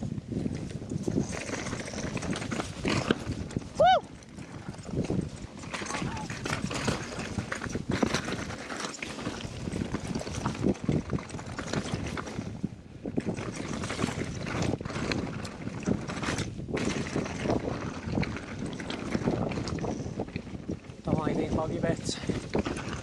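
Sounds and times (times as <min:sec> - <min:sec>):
bike rattling over stones: 0:00.0 - 0:23.0
wind on microphone: 0:00.0 - 0:23.0.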